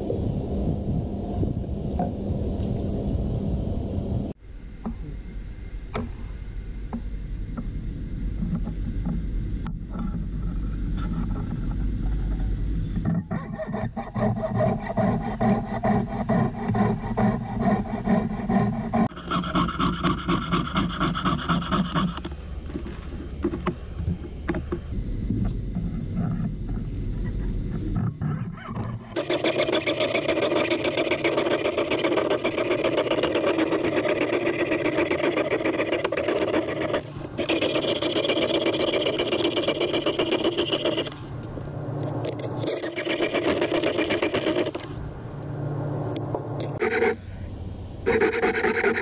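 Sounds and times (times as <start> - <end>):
saw cutting metal: 13.4 - 22.2, 29.2 - 41.2, 42.7 - 44.9.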